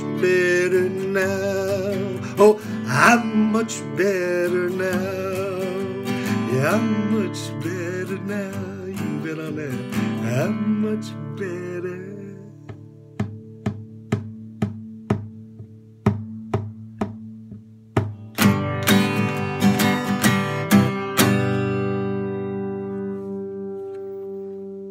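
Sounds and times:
acoustic guitar strumming: 0:00.0 - 0:24.9.

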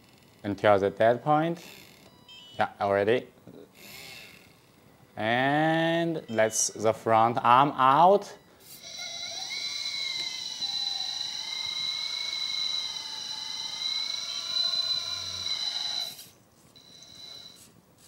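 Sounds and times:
electric hydraulic pump whining: 0:08.6 - 0:16.4.

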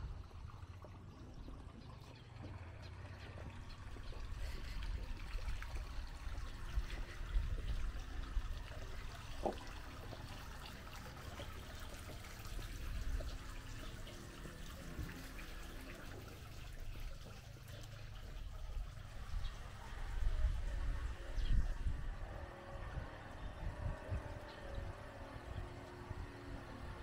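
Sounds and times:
low uneven rumble: 0:00.0 - 0:27.0
water lapping against boats: 0:00.0 - 0:27.0.

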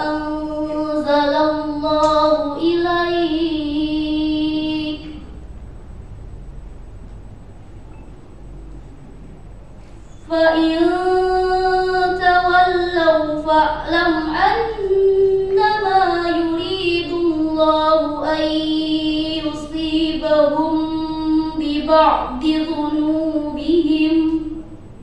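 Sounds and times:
girl reciting melodically: 0:00.0 - 0:05.4, 0:10.2 - 0:24.8.

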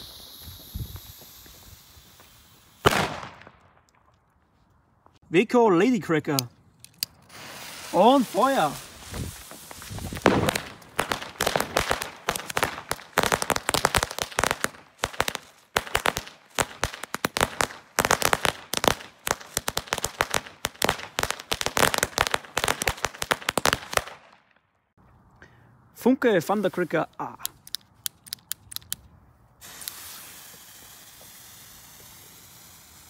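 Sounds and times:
firecrackers going off: 0:00.0 - 0:03.8, 0:07.3 - 0:24.2, 0:29.6 - 0:33.0.

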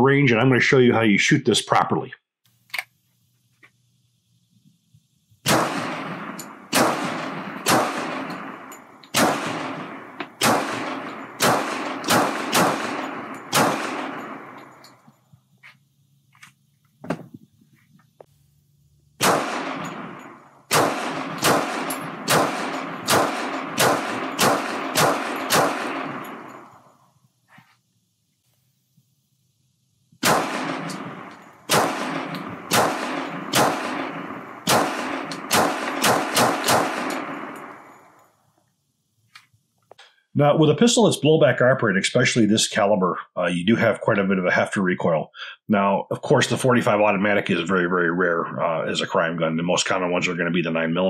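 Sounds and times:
pistol shots with echo: 0:05.4 - 0:15.0, 0:19.2 - 0:26.9, 0:30.2 - 0:38.1.

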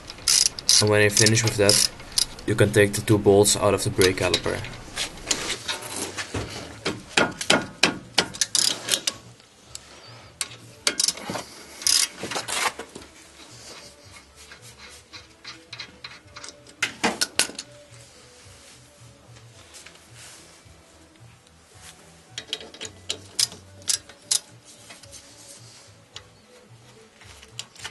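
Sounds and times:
hand tools clicking on bolts: 0:00.0 - 0:02.5, 0:06.8 - 0:09.8, 0:10.4 - 0:12.5, 0:14.4 - 0:17.7, 0:22.3 - 0:25.1.

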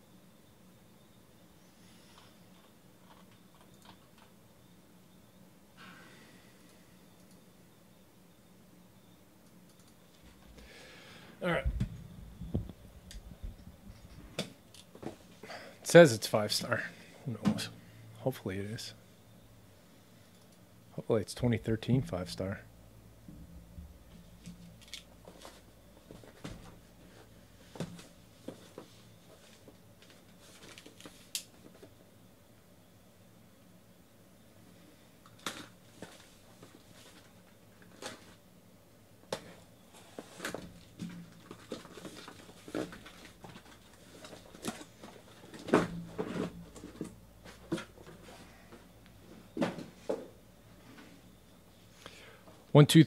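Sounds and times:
cardboard rustling and scraping: 0:40.0 - 0:48.4.

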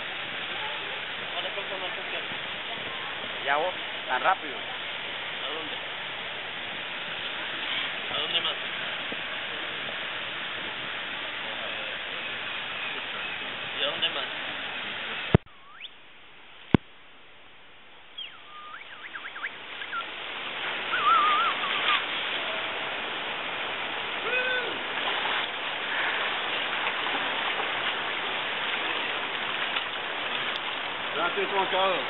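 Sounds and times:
river water rushing: 0:00.0 - 0:16.7, 0:17.4 - 0:32.0
short wavering calls: 0:15.5 - 0:16.0, 0:18.1 - 0:20.2, 0:20.8 - 0:22.9.

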